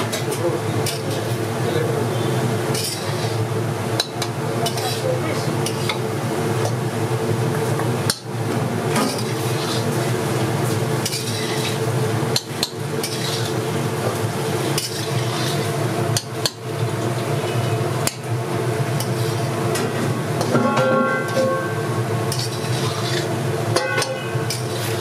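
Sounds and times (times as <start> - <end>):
steady hum: 0.0 - 25.0
metal utensils clinking on pots: 4.0 - 5.0, 20.5 - 21.7, 22.3 - 25.0.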